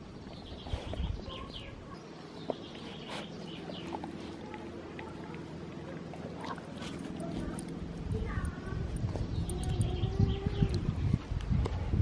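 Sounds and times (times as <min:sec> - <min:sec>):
birds chirping: 0:00.0 - 0:11.2
faint low hum: 0:00.0 - 0:12.0
dog licking and gnawing: 0:02.5 - 0:10.8.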